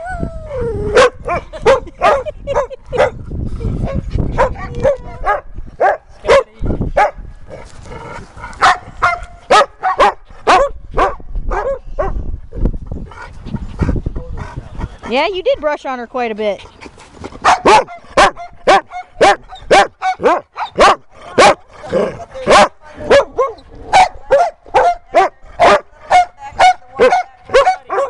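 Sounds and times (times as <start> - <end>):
dogs barking: 1.0 - 3.2, 3.8 - 7.2, 8.5 - 12.2, 17.4 - 28.0.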